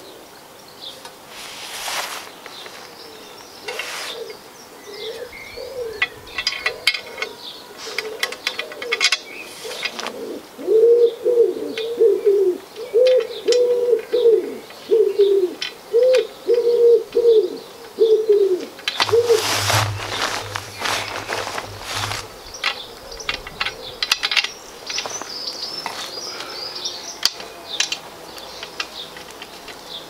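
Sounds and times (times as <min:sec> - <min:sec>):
pigeon cooing: 0:03.7 - 0:19.3.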